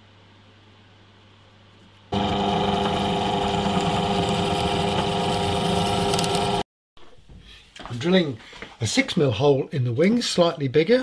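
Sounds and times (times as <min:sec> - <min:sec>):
drill press boring into wood: 0:02.2 - 0:06.6.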